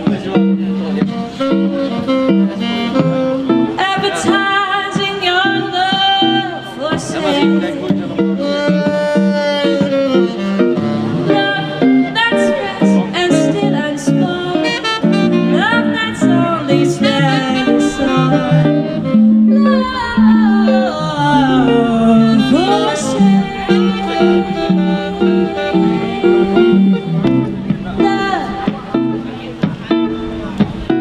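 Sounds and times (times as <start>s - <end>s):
electric guitar: 0.0s - 31.0s
saxophone playing: 0.0s - 31.0s
woman singing: 3.8s - 7.8s, 11.2s - 29.3s.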